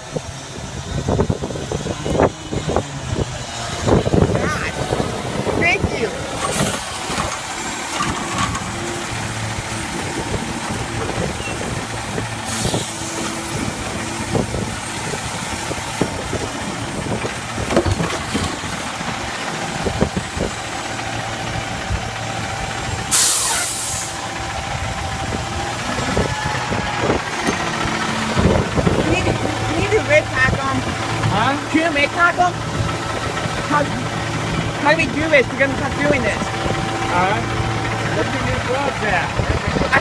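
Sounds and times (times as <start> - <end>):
diesel engine hum: 0.0 - 40.0
knocks and rattles: 6.2 - 12.4, 13.2 - 22.1
air hiss: 23.1 - 24.2.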